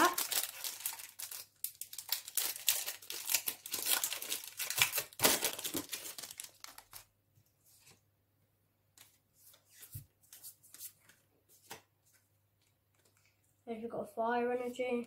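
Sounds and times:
foil wrapper crinkling: 0.0 - 7.1.

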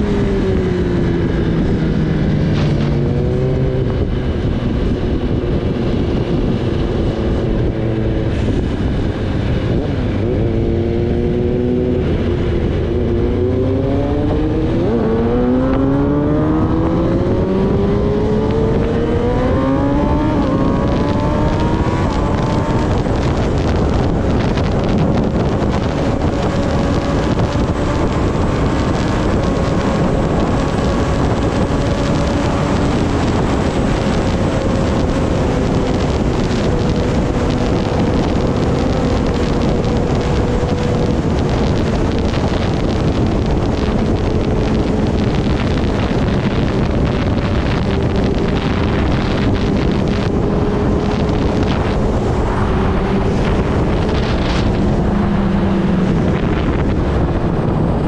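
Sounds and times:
motorcycle engine revving: 0.0 - 58.0
wind rush on microphone: 0.0 - 58.0.

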